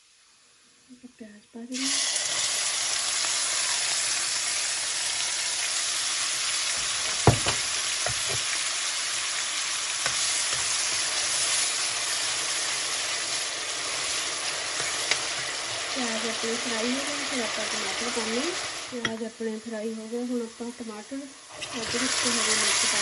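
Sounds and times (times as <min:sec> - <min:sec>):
onion sizzling in hot oil: 0:00.0 - 0:23.0
metal spoon knocking pan: 0:07.1 - 0:08.5.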